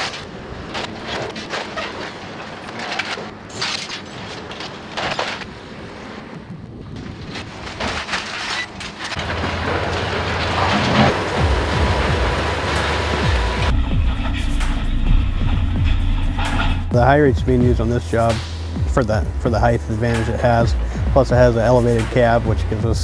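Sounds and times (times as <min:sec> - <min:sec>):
steel members breaking and crashing: 0:00.0 - 0:05.8, 0:07.3 - 0:16.8
low machine drone: 0:09.0 - 0:23.0.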